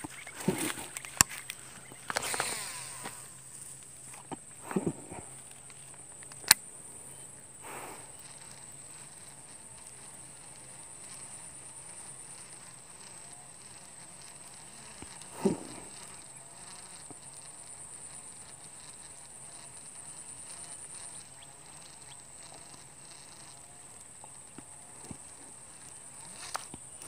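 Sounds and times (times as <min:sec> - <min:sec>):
high-pitched insect chirring: 0:00.0 - 0:04.0, 0:05.1 - 0:27.0
sharp click: 0:06.2 - 0:06.7.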